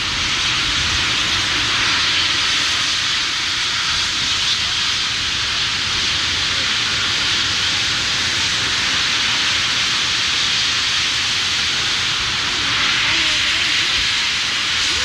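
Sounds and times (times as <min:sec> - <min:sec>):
water cascading: 0:04.6 - 0:15.0.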